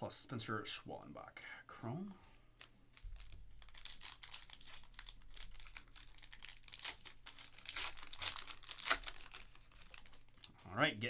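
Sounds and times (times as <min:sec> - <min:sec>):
foil wrapper ripping: 0:03.0 - 0:10.2
foil wrapper crinkling: 0:03.0 - 0:10.5.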